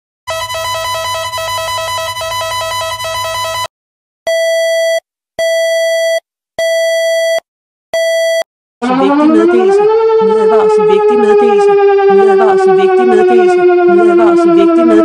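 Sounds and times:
buzzy alarm tone: 0.3 - 3.7, 8.8 - 15.0
long electronic beeps: 0.3 - 3.7
siren rising: 0.3 - 3.7, 8.8 - 15.0.

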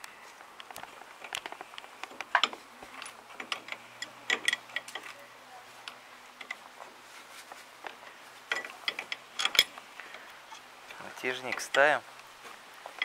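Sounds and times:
wrench clicking on metal chain: 2.3 - 5.1, 8.5 - 9.7.

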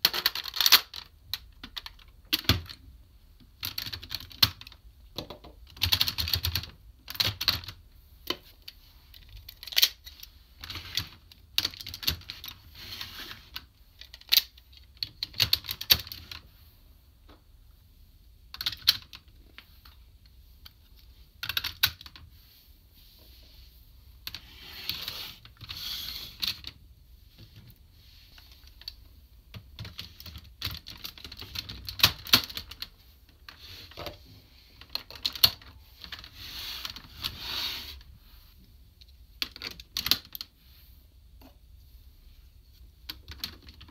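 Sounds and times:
plastic parts clicking: 0.0 - 2.8.

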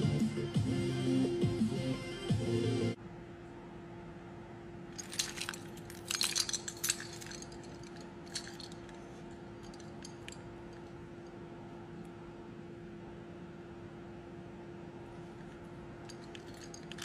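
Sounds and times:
faint steady hum: 0.0 - 17.0
keys jingling: 5.0 - 10.9, 16.1 - 17.0.

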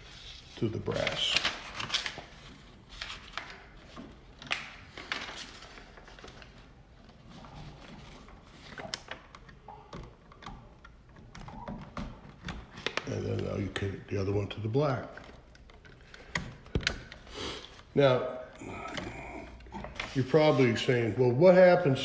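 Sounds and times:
paper rustling: 0.0 - 9.7, 18.7 - 20.9.

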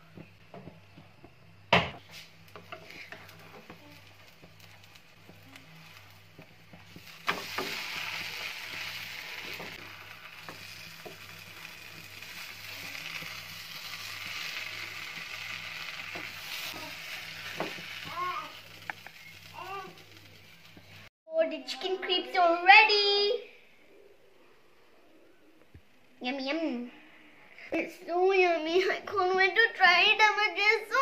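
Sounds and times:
crepe sizzling in a pan: 2.0 - 21.1.

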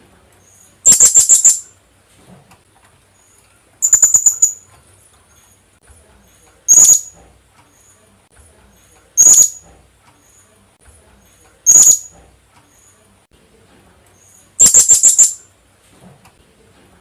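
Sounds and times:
parrot high-pitched calls: 0.5 - 1.8, 3.8 - 4.7, 6.7 - 7.2, 9.2 - 9.6, 11.6 - 12.2, 14.6 - 15.4.

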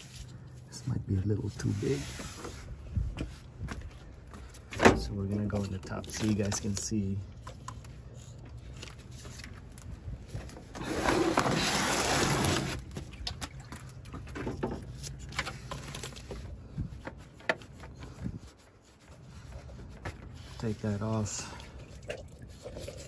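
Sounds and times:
loud rustling scrape: 1.5 - 2.8, 10.6 - 12.9.

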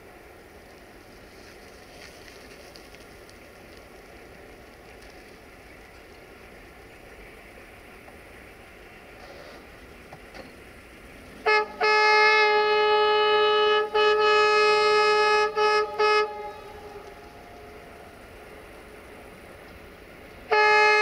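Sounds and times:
locomotive horn blasts: 11.4 - 19.1, 20.4 - 21.0.

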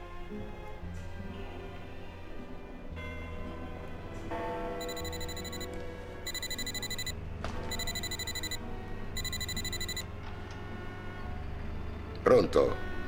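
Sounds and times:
soft background music: 0.0 - 13.0
phone ringtone: 4.8 - 5.7, 6.3 - 8.6, 9.2 - 10.0.

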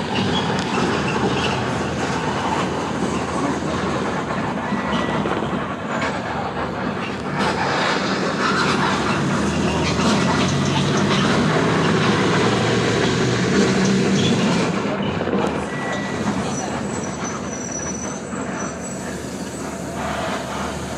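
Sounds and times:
tyre and road noise: 0.0 - 20.9
vehicle engine rumble: 0.0 - 20.9.

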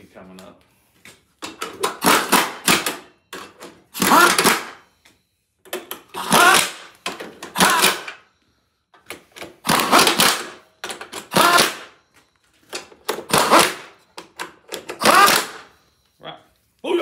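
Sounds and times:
pneumatic impact wrench bursts: 1.6 - 5.0, 5.7 - 8.3, 9.0 - 12.0, 12.9 - 15.9.

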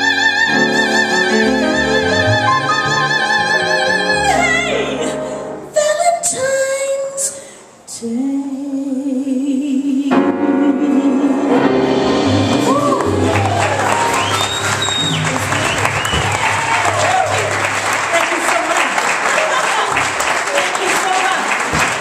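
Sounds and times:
piano: 0.0 - 7.2, 8.0 - 20.5
woman singing jazz with vibrato: 0.0 - 13.0.

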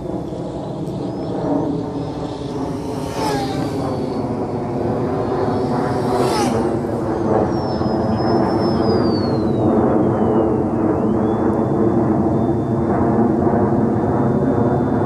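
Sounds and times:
rc plane motor whining: 0.0 - 9.7
low rumble: 0.0 - 15.0.

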